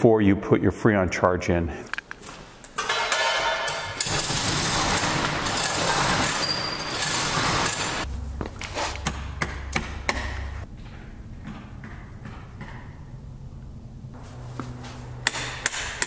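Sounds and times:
roll-up steel door rattling: 3.8s - 8.1s.

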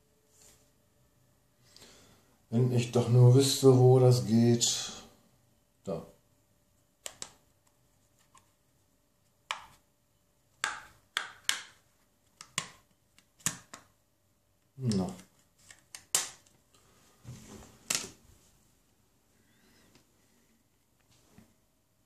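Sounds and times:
plastic clicks and snaps: 7.0s - 7.8s.

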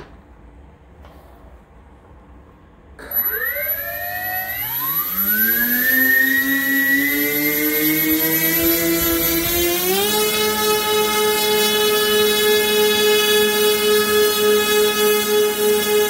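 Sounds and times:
electric motors whining: 3.0s - 16.0s.

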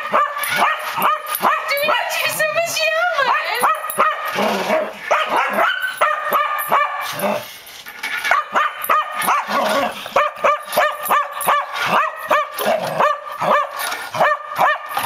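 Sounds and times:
dog barking in high yips: 0.0s - 2.3s, 3.2s - 4.3s, 5.1s - 7.2s, 8.2s - 9.5s, 10.2s - 15.0s.

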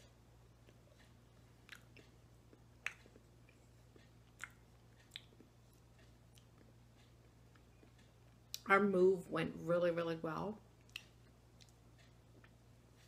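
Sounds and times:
low steady hum: 0.0s - 13.0s
wet mouth clicks and smacks: 1.6s - 5.5s, 10.8s - 11.8s.

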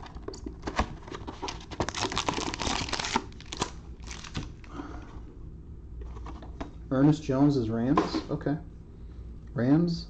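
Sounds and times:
wrappers crinkling and tearing: 1.4s - 4.8s.

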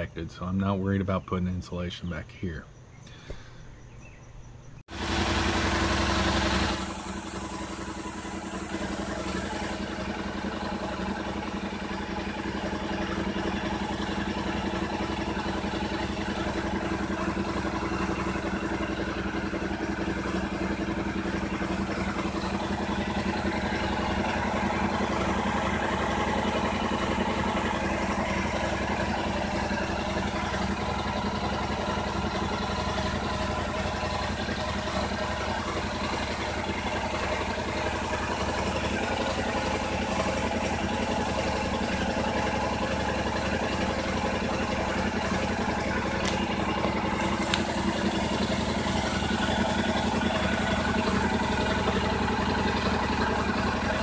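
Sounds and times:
engine idling: 0.0s - 54.0s.

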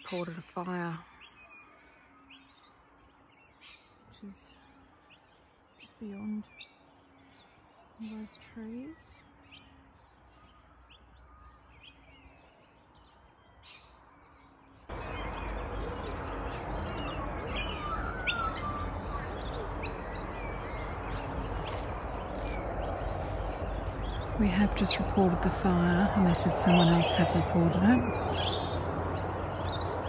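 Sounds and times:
birds chirping: 0.0s - 30.0s
bird whistles: 17.5s - 20.6s.

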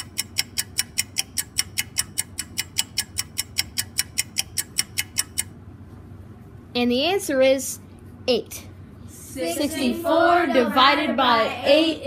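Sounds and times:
rapid clock ticking: 0.0s - 5.4s.

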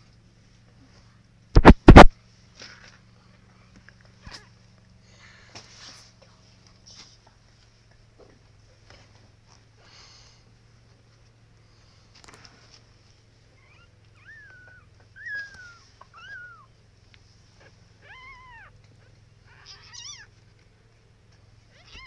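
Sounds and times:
kitten mewing: 1.6s - 2.1s, 17.6s - 18.8s, 19.4s - 20.3s, 21.7s - 22.0s.

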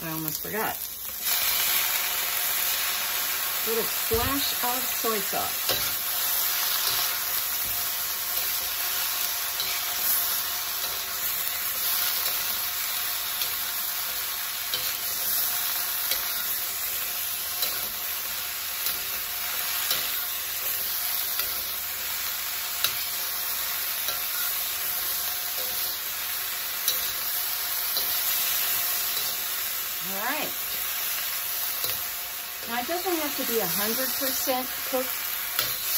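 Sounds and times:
broccoli sizzling in a wok: 0.0s - 35.9s
metal spatula scraping a wok: 5.6s - 12.6s, 31.7s - 35.9s.

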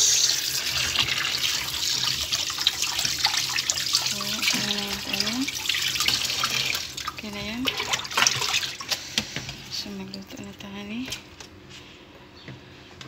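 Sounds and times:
tap running into water: 0.5s - 8.8s.

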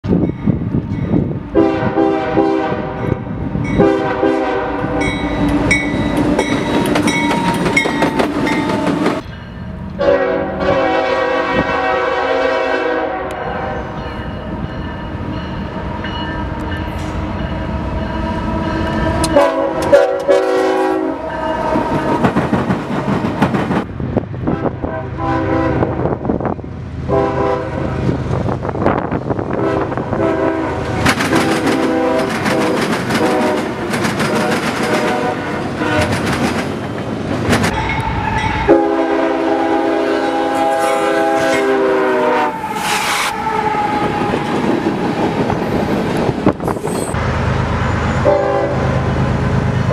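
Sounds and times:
locomotive horn blasts: 1.5s - 6.5s, 10.0s - 14.0s, 17.8s - 22.2s, 24.5s - 26.1s, 27.1s - 28.1s, 29.5s - 36.2s, 37.8s - 44.0s, 48.2s - 49.1s
train wheels on rails: 3.0s - 10.1s, 13.3s - 24.5s, 27.8s - 49.9s
locomotive engine: 30.6s - 49.9s.

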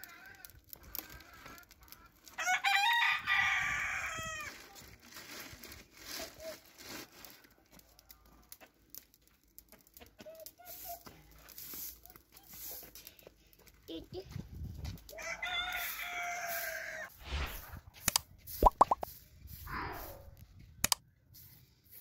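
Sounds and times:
rooster crowing: 2.4s - 4.5s, 15.1s - 17.1s.

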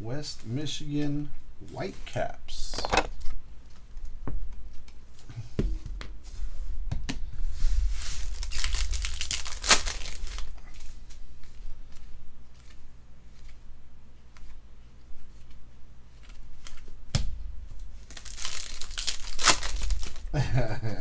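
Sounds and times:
foil wrapper tearing and crinkling: 8.0s - 10.6s, 18.0s - 20.3s
cards rustling: 8.0s - 13.6s, 18.0s - 20.3s.

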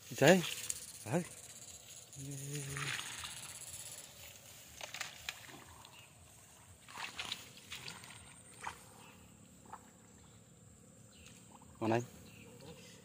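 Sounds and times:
rustles and light clicks in grass: 0.0s - 10.2s.

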